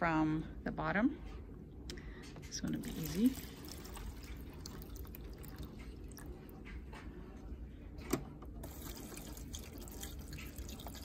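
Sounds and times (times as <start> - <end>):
water trickling and splashing: 2.8 - 6.5, 8.6 - 11.0.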